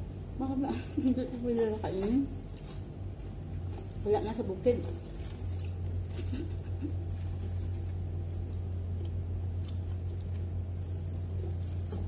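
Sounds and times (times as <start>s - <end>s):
steady low hum: 0.0s - 12.0s
bread tearing: 4.8s - 12.0s
chewing: 4.8s - 12.0s.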